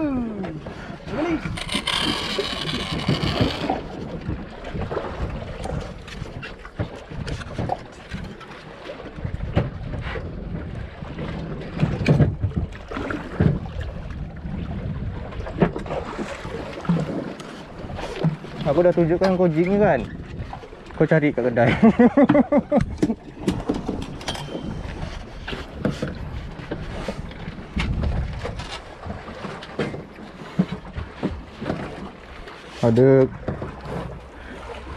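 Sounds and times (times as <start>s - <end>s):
boat noise at sea: 0.0s - 34.9s
rod and reel knocks: 1.4s - 4.0s, 23.4s - 26.2s
wind buffeting microphone: 9.2s - 21.9s, 22.6s - 30.0s.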